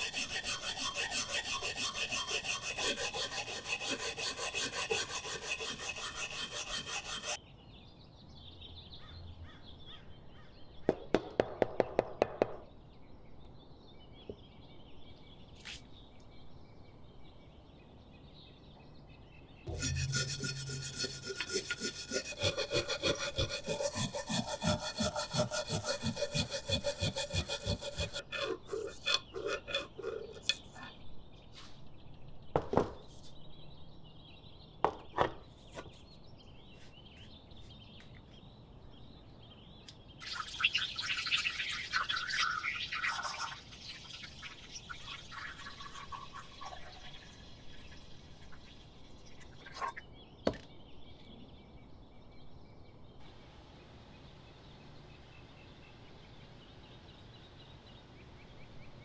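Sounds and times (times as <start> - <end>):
tool scraping machete blade: 0.0 - 7.4, 19.7 - 30.8.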